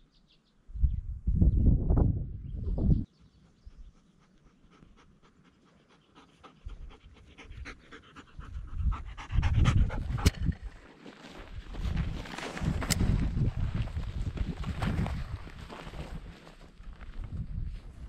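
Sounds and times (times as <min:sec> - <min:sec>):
dog panting: 0:03.2 - 0:10.4
footsteps through dry grass: 0:10.5 - 0:18.0.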